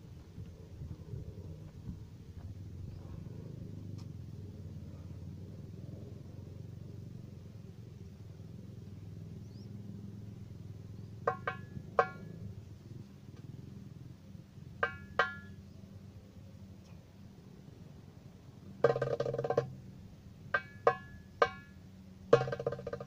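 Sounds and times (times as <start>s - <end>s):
wind rumble on microphone: 0.0s - 14.7s
ringing darbuka strikes: 11.3s - 12.3s, 14.8s - 15.6s, 18.8s - 19.8s, 20.6s - 23.0s.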